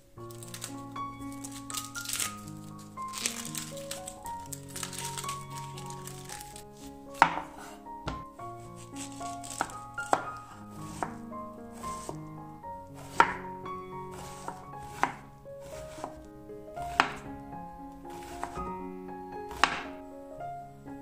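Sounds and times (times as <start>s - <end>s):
soft background music: 0.0s - 21.0s
knife chopping on wooden board: 7.2s - 8.3s, 9.0s - 11.2s, 11.8s - 12.2s, 13.0s - 13.4s, 14.1s - 16.2s, 16.8s - 17.2s, 18.2s - 18.7s, 19.5s - 19.9s.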